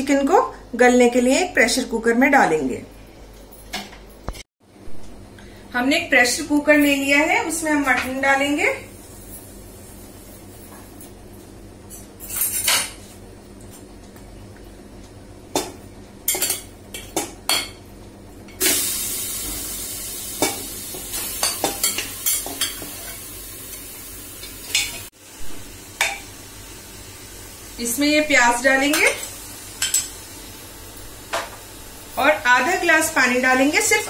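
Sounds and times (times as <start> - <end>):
meat sizzling: 18.6 - 34.0.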